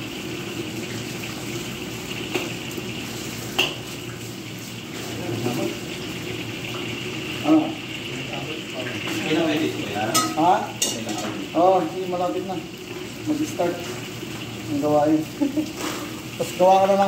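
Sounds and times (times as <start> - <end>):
utensils clinking against dishes: 10.0 - 11.5.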